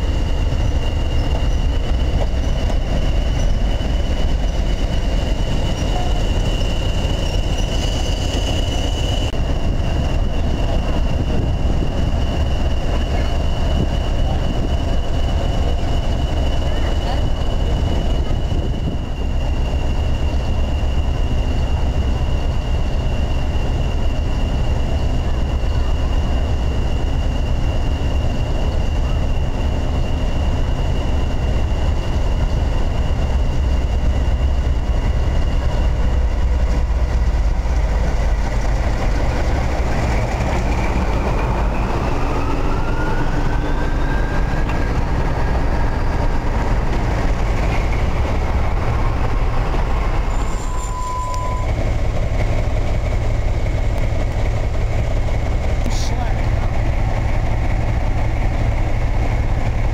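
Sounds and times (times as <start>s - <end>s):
diesel locomotive engine rumble: 0.0s - 59.9s
turbocharger whistle: 50.3s - 51.8s.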